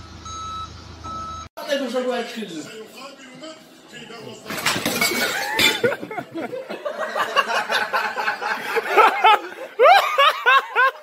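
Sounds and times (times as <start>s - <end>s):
people laughing: 5.3s - 11.0s.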